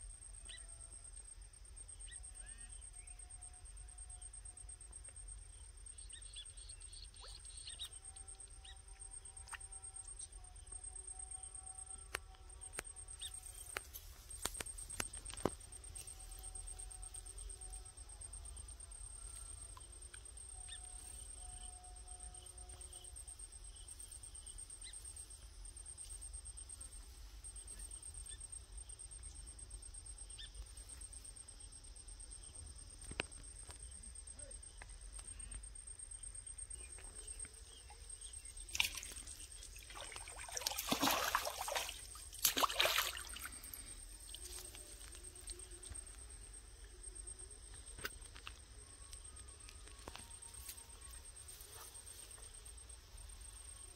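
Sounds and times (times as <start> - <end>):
insect trilling: 33.0 - 53.9
fish splashing in water: 38.7 - 44.4.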